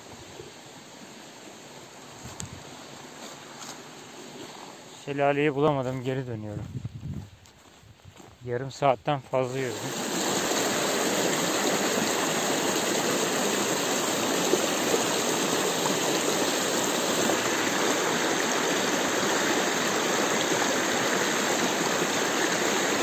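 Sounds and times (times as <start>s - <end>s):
stream rushing over stones: 9.5s - 23.0s.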